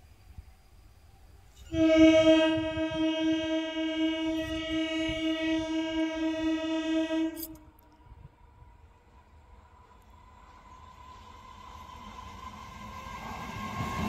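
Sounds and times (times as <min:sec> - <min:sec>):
train horn blast: 0:01.5 - 0:07.8.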